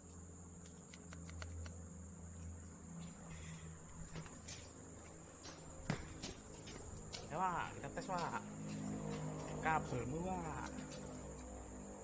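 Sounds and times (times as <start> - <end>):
high-pitched insect drone: 0.0 - 12.0
light clicks: 0.6 - 1.8.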